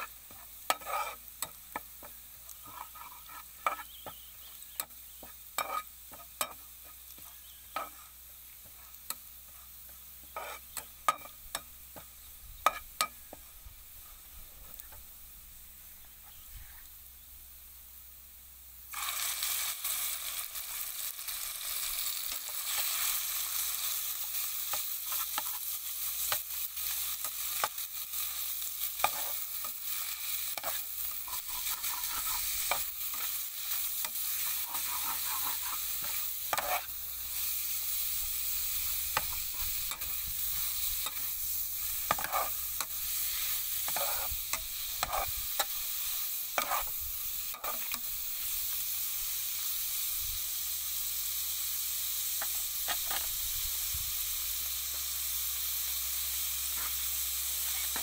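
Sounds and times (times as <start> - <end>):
pork sizzling in frying pan: 0.0 - 58.0
metal spoon scraping pan: 0.3 - 1.8, 2.6 - 4.2, 5.6 - 6.6, 10.3 - 11.6, 29.0 - 36.9, 38.9 - 45.8, 46.6 - 46.9, 47.5 - 48.0.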